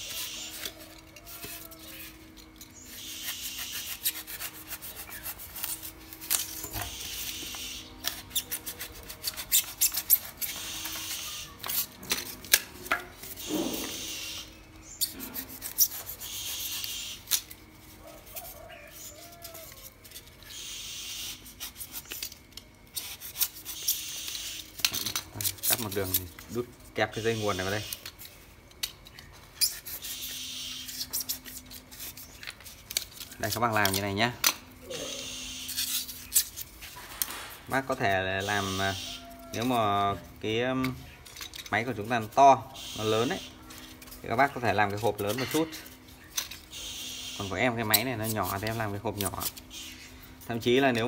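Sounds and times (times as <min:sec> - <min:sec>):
knife blade sawing through foam: 0:02.9 - 0:11.9, 0:15.0 - 0:17.4, 0:22.9 - 0:24.6.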